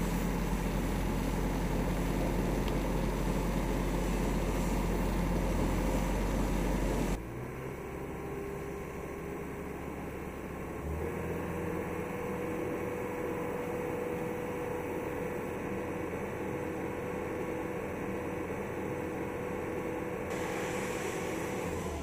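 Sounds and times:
low engine hum: 0.0s - 22.0s
hydraulic whine: 18.5s - 22.0s
hissing: 20.3s - 22.0s.

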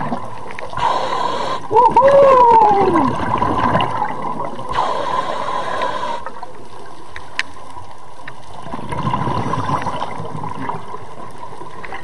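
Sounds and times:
scuba exhalation bubbles: 0.0s - 6.3s, 8.6s - 11.0s
underwater water noise: 0.0s - 12.0s.

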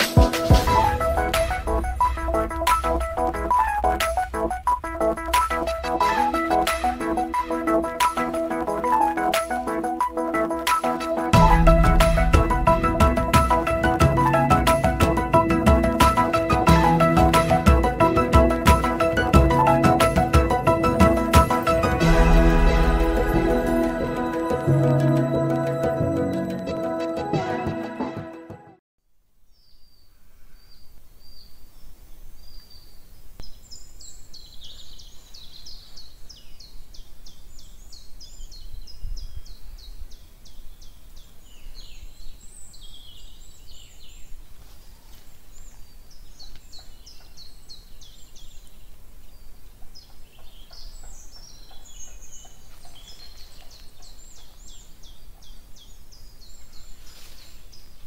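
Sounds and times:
low rumble: 0.6s - 5.8s
songbirds trilling and chirping: 29.6s - 58.0s.

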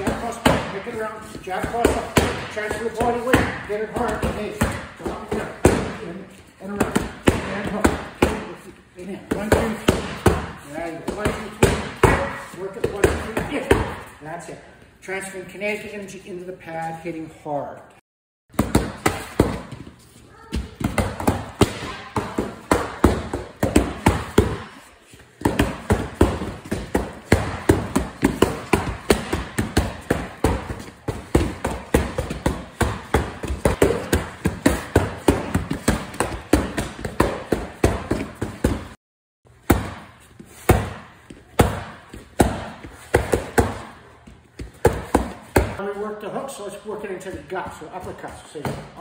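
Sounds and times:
gloved punches hitting strike pads: 25.4s - 39.0s, 39.6s - 44.0s.

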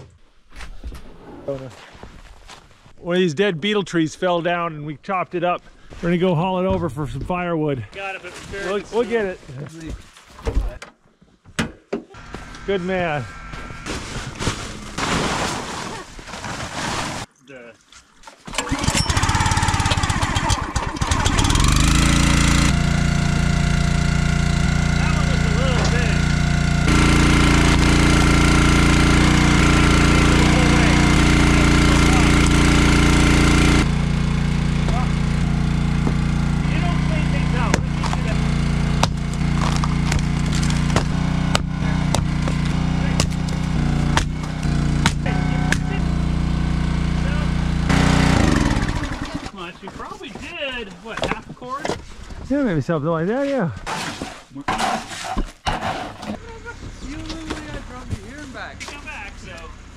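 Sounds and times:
small gas engine running: 12.2s - 16.0s, 18.5s - 49.8s
axe striking firewood: 38.9s - 45.9s.

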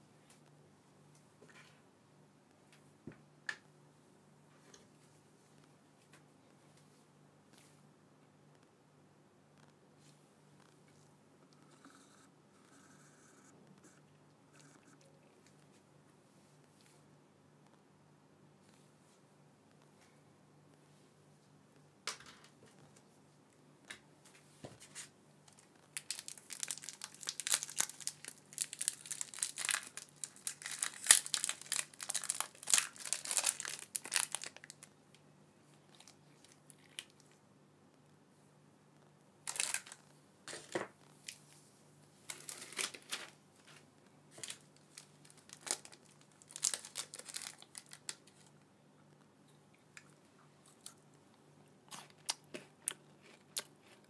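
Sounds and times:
wrapper crinkling: 25.5s - 35.0s, 35.9s - 37.4s, 39.4s - 41.4s, 42.3s - 48.5s.

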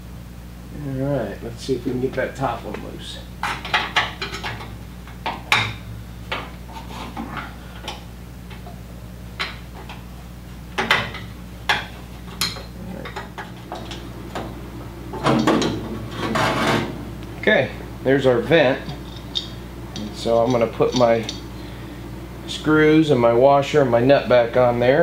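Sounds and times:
metal scraping and handling: 6.4s - 8.1s, 15.1s - 17.0s, 18.4s - 21.8s.

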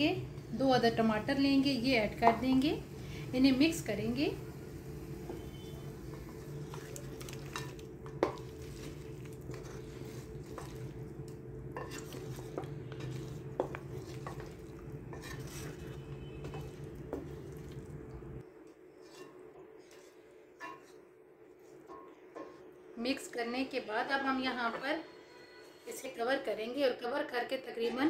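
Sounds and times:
wooden spatula scraping metal pot: 5.3s - 11.1s, 11.7s - 17.8s, 18.9s - 21.0s.

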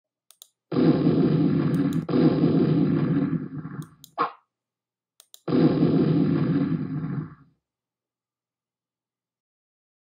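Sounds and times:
faint clicks: 0.3s - 0.6s.

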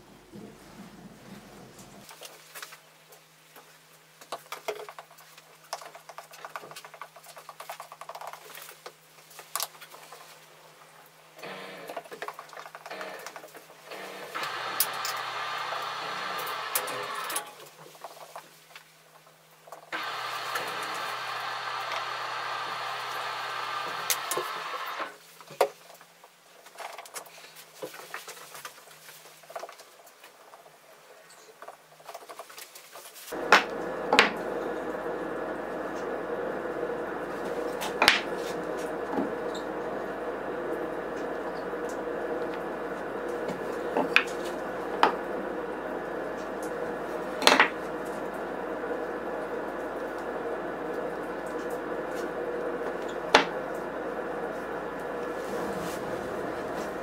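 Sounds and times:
steady hum: 13.9s - 17.4s, 20.0s - 25.2s, 33.3s - 57.0s.

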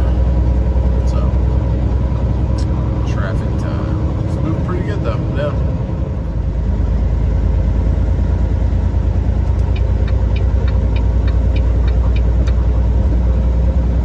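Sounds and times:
truck engine and road noise: 0.0s - 14.0s
light even ticks: 9.5s - 12.7s.

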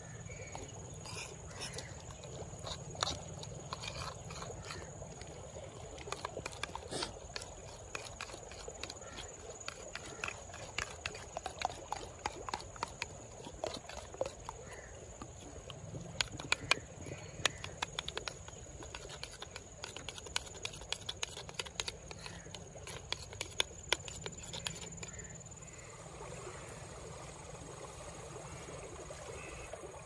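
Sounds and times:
utensil clicking against bowl: 6.0s - 25.2s
metal utensil stirring sauce: 6.1s - 15.4s, 16.2s - 25.3s.

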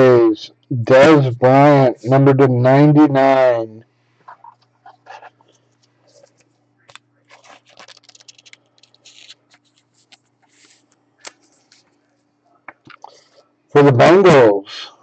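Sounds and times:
faint steady hum: 0.0s - 15.0s
card scraping and rustling: 7.2s - 12.0s.

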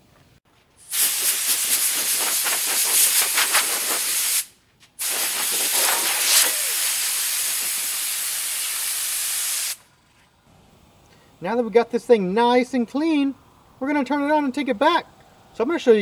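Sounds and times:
hose nozzle spraying water: 0.8s - 9.8s.

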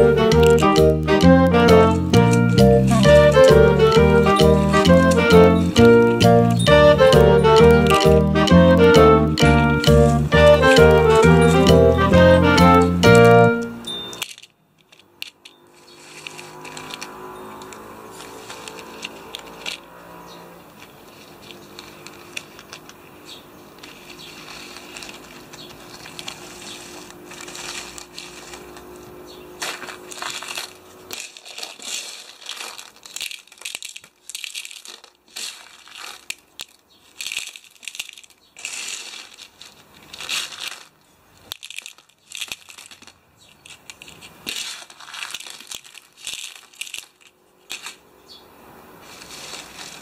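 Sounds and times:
gravel rattling and crunching: 14.3s - 48.4s.

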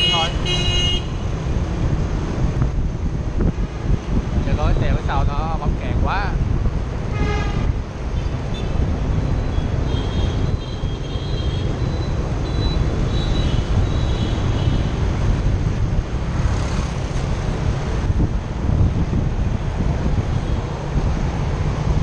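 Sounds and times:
road noise: 0.0s - 22.0s
wind rumble on microphone: 0.0s - 22.0s.

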